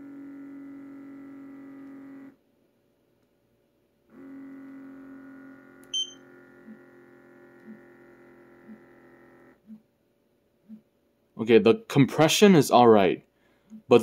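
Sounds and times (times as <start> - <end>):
massager motor humming: 0.0 - 2.4, 4.0 - 9.9
short high beep: 6.0 - 6.2.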